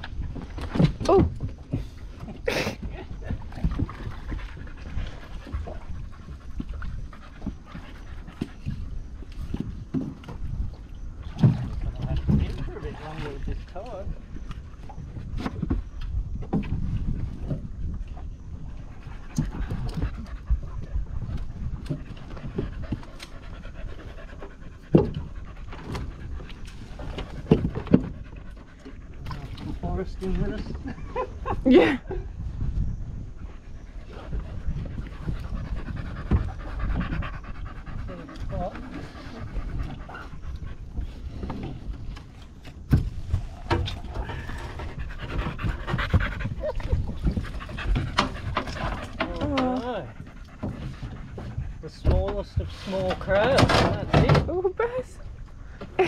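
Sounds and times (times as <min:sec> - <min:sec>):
dog panting: 0:03.4 - 0:09.6, 0:18.8 - 0:29.3, 0:33.3 - 0:41.4, 0:44.0 - 0:53.4.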